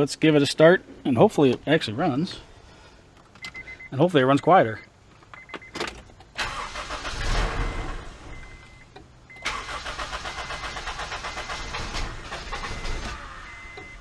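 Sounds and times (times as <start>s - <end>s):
engine cranking by starter: 5.9s - 8.6s, 9.3s - 14.0s.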